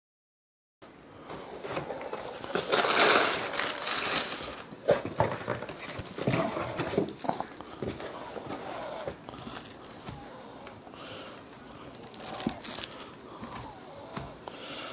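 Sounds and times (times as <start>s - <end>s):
packing paper rustling: 1.3s - 10.3s, 11.9s - 14.4s.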